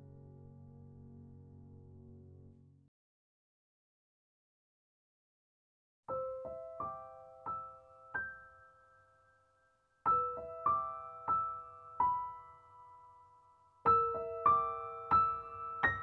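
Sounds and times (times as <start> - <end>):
slow solo piano: 0.0 - 2.8, 6.1 - 16.0.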